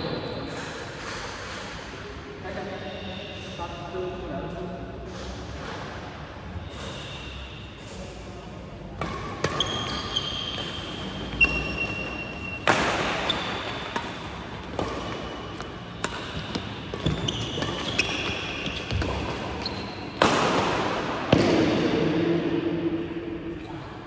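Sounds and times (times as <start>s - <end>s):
shoes squeaking on court: 9.0s - 20.3s
racket hitting shuttlecock: 9.0s - 22.3s.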